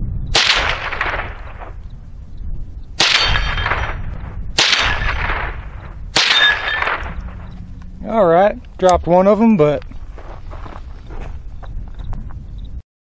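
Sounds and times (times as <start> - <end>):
rifle shots with echo: 0.3 - 1.8, 3.0 - 7.6.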